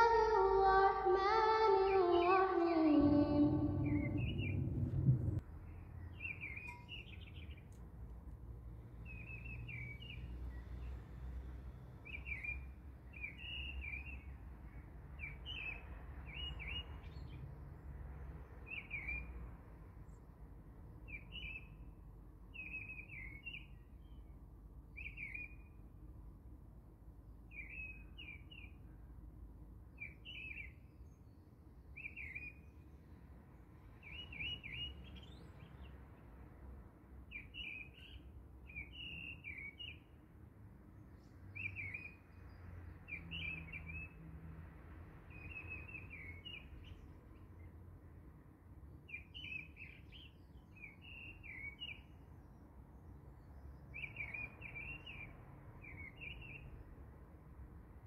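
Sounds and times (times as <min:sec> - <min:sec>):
bird chirping: 0:00.0 - 0:05.4, 0:06.0 - 0:07.8, 0:33.9 - 0:36.0, 0:37.3 - 0:40.1
sung musical intro: 0:00.0 - 0:05.4
low background hum: 0:00.0 - 0:06.1.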